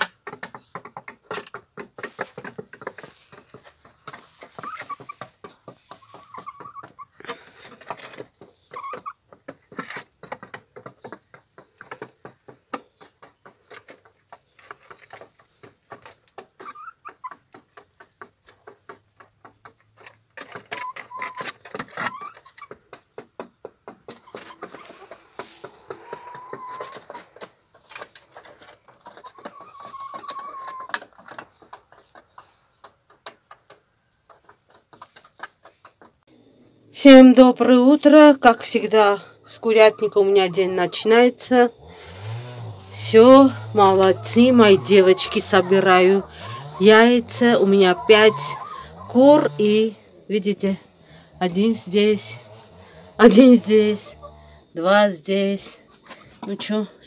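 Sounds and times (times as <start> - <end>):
hens pecking feed: 0.0 - 57.0
hen calls: 24.3 - 27.2, 42.9 - 55.0.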